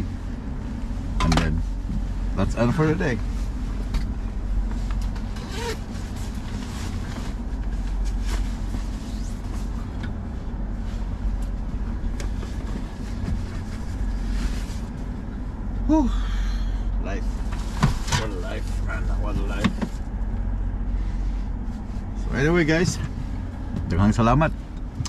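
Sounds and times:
diesel engine idling: 0:00.0 - 0:25.0
clothing rustling: 0:03.3 - 0:15.4.

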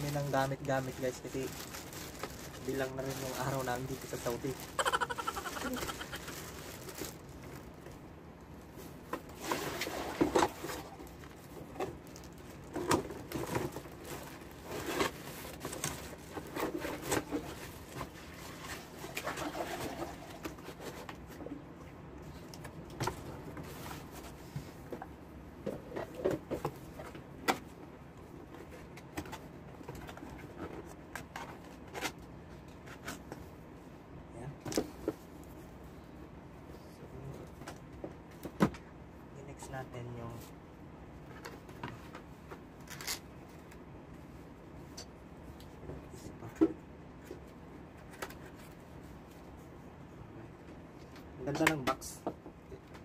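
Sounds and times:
plastic bag rustling: 0:00.0 - 0:08.0, 0:08.8 - 0:20.5.

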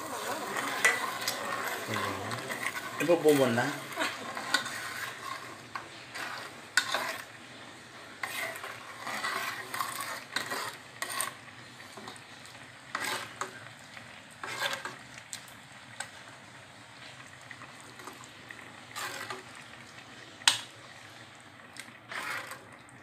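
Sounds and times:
ladle scraping a pot: 0:00.0 - 0:13.7, 0:14.4 - 0:15.1, 0:17.6 - 0:19.7, 0:21.8 - 0:22.8
low cooking background: 0:00.0 - 0:23.0.

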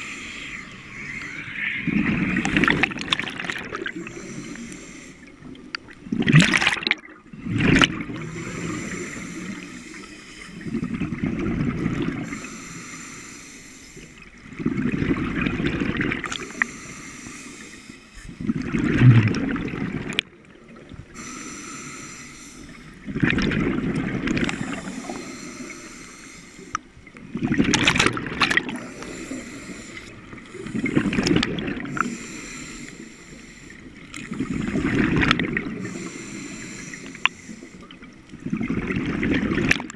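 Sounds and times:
exhaled bubbles rumbling underwater: 0:00.0 - 0:12.7, 0:14.2 - 0:17.7, 0:18.3 - 0:22.0, 0:22.7 - 0:33.1, 0:33.7 - 0:39.9
hissing regulator inhalations: 0:03.8 - 0:05.4, 0:08.2 - 0:10.9, 0:12.2 - 0:14.2, 0:16.3 - 0:18.4, 0:21.2 - 0:23.0, 0:24.4 - 0:27.0, 0:28.7 - 0:34.9, 0:35.8 - 0:38.1.

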